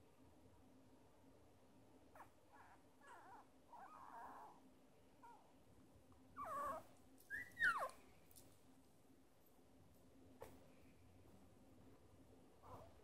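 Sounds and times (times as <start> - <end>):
puppy squeaking and whimpering: 2.2 - 4.6, 6.4 - 8.0.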